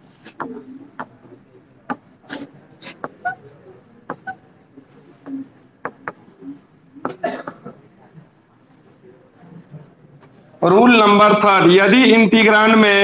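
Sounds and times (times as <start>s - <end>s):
faint room noises: 0.0s - 13.0s
stylus tapping on a screen: 0.4s - 1.2s, 4.1s - 4.4s, 5.2s - 6.3s.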